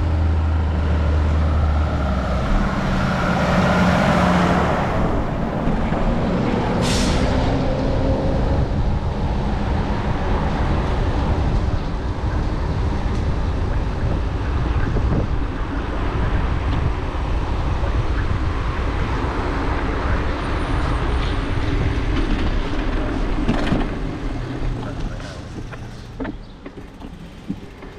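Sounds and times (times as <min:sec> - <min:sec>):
road traffic noise: 0:00.0 - 0:27.9.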